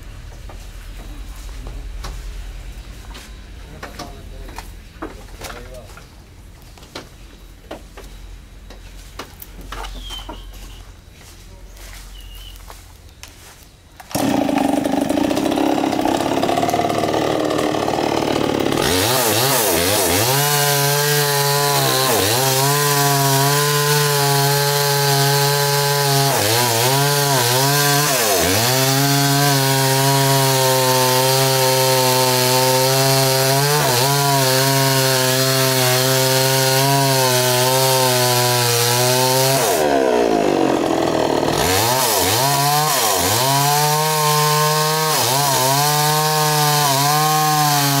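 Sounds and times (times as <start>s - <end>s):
chainsaw cutting wood: 14.0s - 48.0s.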